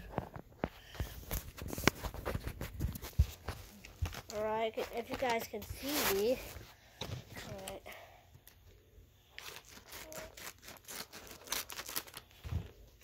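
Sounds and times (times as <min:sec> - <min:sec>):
paper crinkling and tearing: 0:09.3 - 0:12.9.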